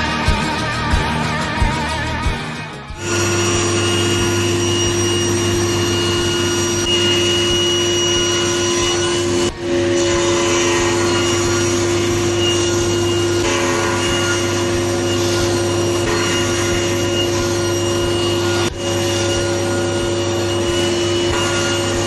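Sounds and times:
table saw cutting: 2.9s - 22.0s
thickness planer running: 3.0s - 22.0s.

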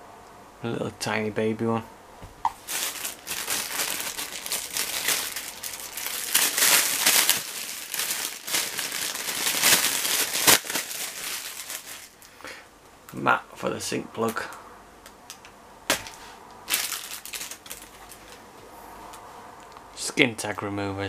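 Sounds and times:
plastic packaging crinkling: 2.5s - 12.4s, 16.0s - 18.4s.

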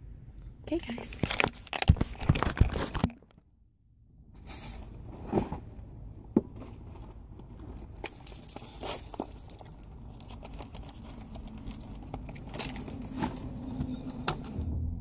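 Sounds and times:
low steady rumble: 3.5s - 15.0s
keys and wallet clinking: 7.8s - 13.3s.

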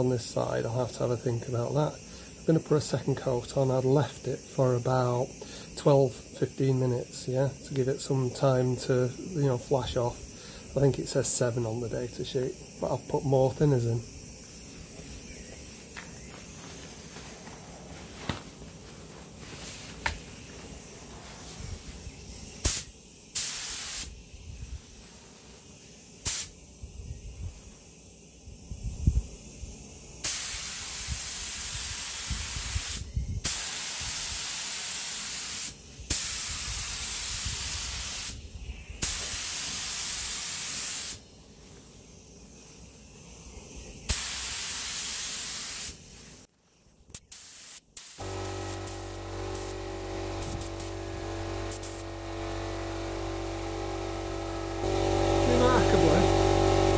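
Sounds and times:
spray gun hissing: 1.1s - 16.2s, 20.6s - 26.5s, 30.2s - 38.4s, 39.0s - 41.2s, 44.0s - 46.5s, 47.2s - 56.9s.

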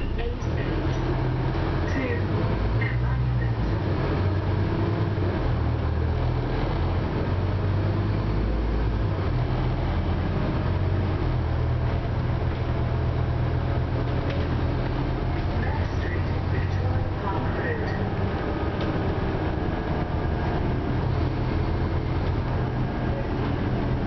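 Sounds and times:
bus cabin noise: 0.0s - 24.0s
bus engine low drone: 0.0s - 24.0s.

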